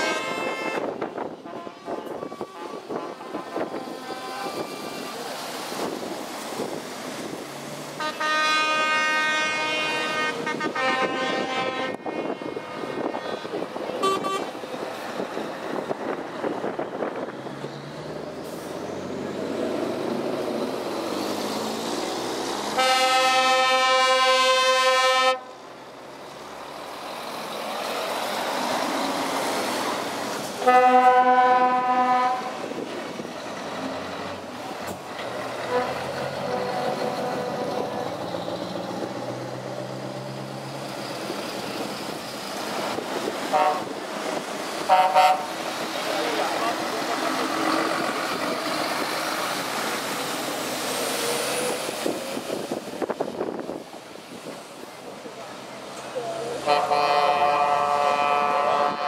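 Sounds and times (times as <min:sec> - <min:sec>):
truck air horns: 0:00.0 - 0:05.0, 0:08.0 - 0:14.6, 0:22.7 - 0:25.6, 0:30.6 - 0:32.7, 0:35.6 - 0:38.3, 0:43.5 - 0:44.0, 0:44.8 - 0:45.6, 0:56.4 - 0:59.0
diesel truck engines passing: 0:00.0 - 0:59.0.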